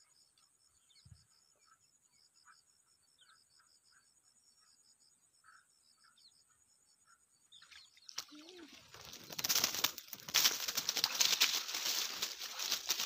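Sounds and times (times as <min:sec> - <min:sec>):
faint insect chirping: 0:00.0 - 0:13.0
rustling of dry leaves and plants: 0:08.0 - 0:13.0.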